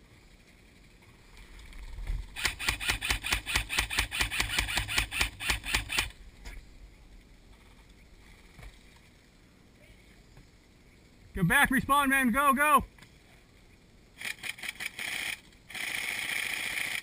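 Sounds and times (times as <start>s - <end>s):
airsoft rifle rapid shots: 2.4s - 6.1s, 14.2s - 17.0s.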